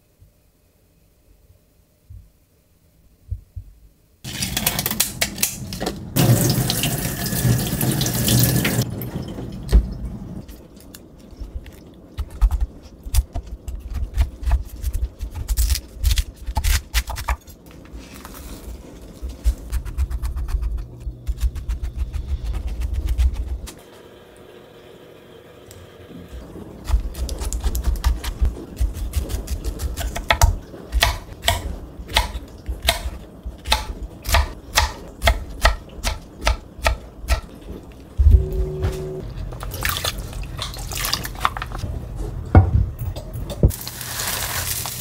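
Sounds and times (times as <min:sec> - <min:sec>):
knife cutting pineapple: 0:26.8 - 0:37.5.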